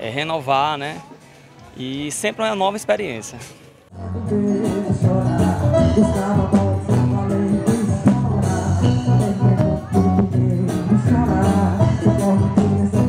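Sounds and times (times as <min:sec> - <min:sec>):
live band music: 0:04.0 - 0:13.0.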